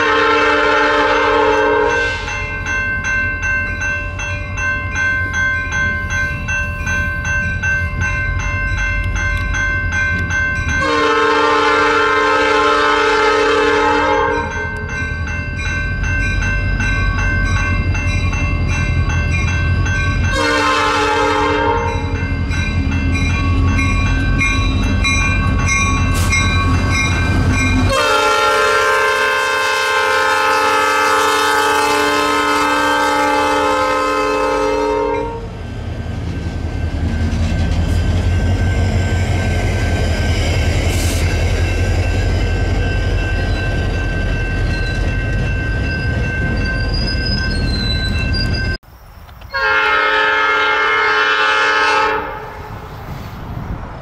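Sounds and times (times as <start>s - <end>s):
multi-chime train air horn: 0.0s - 2.6s, 10.7s - 14.9s, 20.3s - 22.5s, 26.0s - 27.0s, 27.7s - 35.6s, 49.5s - 52.7s
locomotive engines rumbling: 0.0s - 54.0s
train rolling past on rails: 0.0s - 54.0s.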